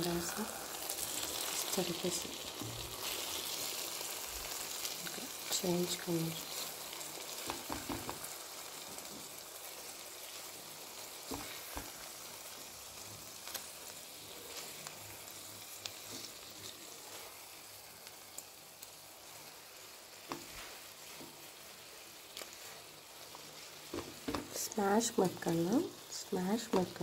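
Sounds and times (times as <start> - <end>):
eggs sizzling in pan: 0.0 - 27.0
spatula tapping and scraping: 7.4 - 8.3, 11.3 - 12.0, 23.9 - 24.6.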